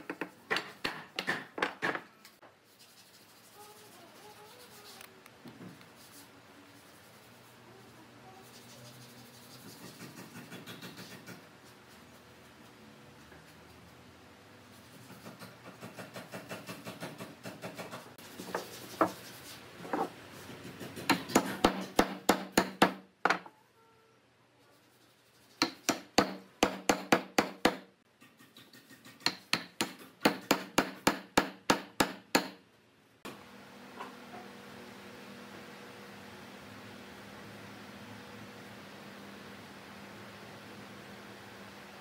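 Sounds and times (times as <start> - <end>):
hammer striking wooden posts: 20.9 - 23.4, 25.6 - 27.9, 29.2 - 32.6.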